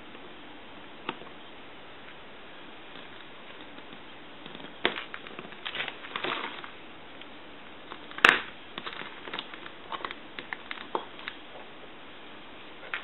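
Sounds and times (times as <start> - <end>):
wire leads clicking and scraping: 7.9 - 11.6.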